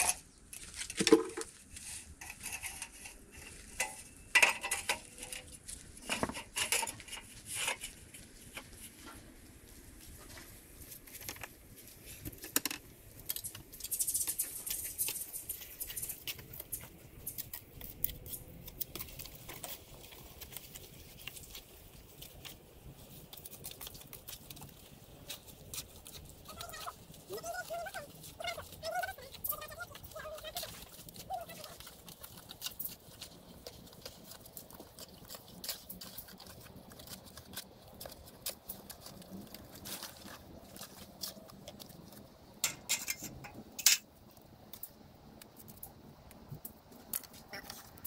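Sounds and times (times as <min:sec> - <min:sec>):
small hard objects clicking: 0:12.4 - 0:48.0.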